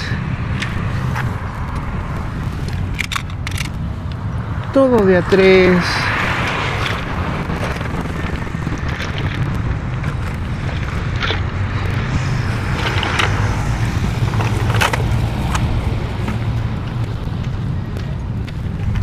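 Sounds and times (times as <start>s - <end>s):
low rumble: 0.0s - 19.0s.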